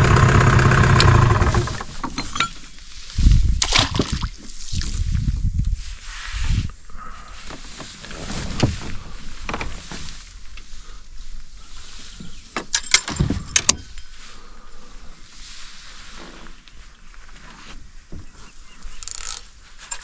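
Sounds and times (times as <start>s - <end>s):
boat and gear knocking and rattling: 0.0s - 2.7s, 12.2s - 14.0s.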